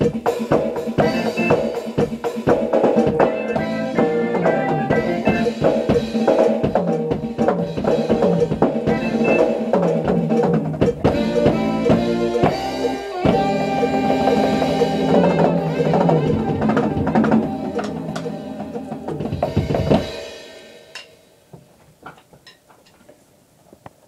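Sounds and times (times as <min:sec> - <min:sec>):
rock song: 0:00.0 - 0:20.9
electronic drum kit playing: 0:00.0 - 0:21.4.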